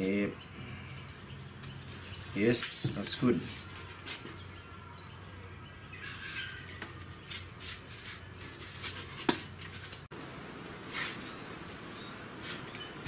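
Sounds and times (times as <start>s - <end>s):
foam sheet scrapes and squeaks: 7.2s - 10.0s, 10.8s - 11.5s.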